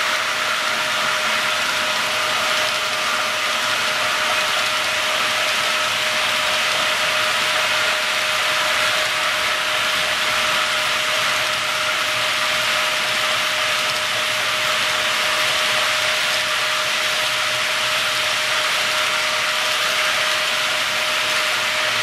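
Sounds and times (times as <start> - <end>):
model train wheels rolling on rails: 0.0 - 22.0.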